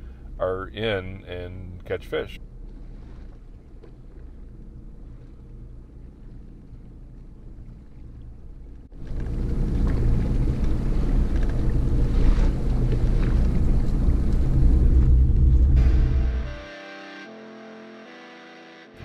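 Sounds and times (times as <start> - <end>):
outboard motor humming: 1.8 - 18.4
wind rumble on microphone: 2.4 - 15.9.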